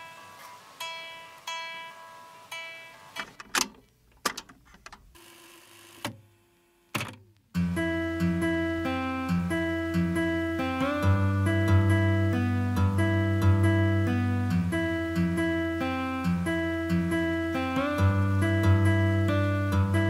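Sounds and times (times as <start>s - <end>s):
instrumental music with plucked notes: 0.0s - 3.2s, 7.6s - 20.0s.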